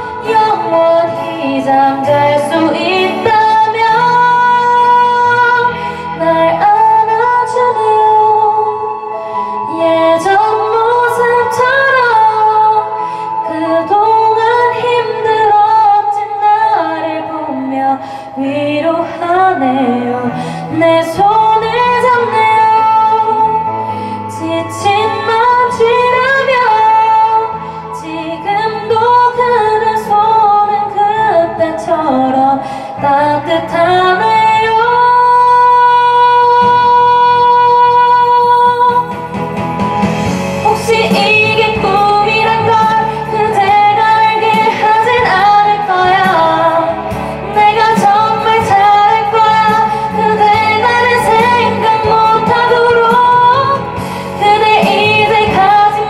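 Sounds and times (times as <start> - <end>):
backing track music: 0.0 - 56.0
woman singing a slow ballad: 0.0 - 56.0.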